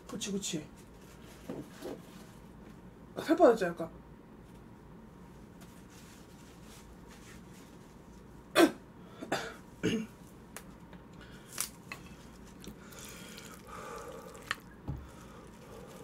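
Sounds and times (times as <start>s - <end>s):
woman coughing: 8.5s - 10.1s
leafy greens rustling: 11.4s - 16.0s.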